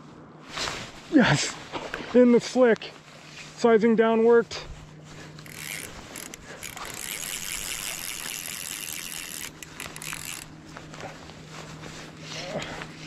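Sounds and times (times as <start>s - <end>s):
fishing reel drag ratcheting: 5.4s - 10.6s.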